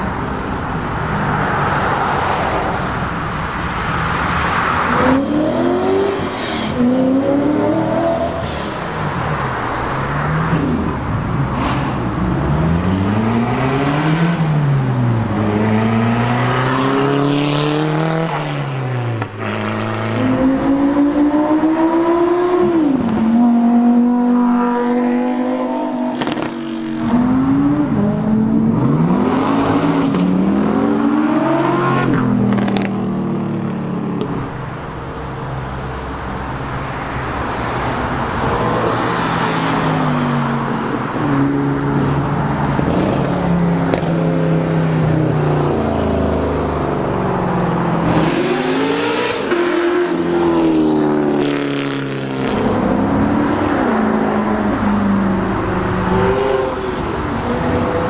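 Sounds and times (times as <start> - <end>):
cars accelerating hard: 0.0 - 58.0
engines revving through gears: 15.4 - 33.0, 48.0 - 58.0.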